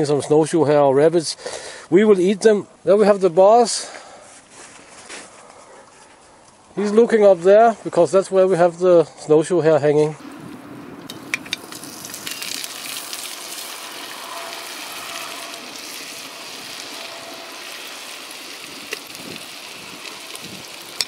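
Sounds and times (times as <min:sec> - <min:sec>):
fat sizzling and crackling in pot: 0:10.2 - 0:21.0.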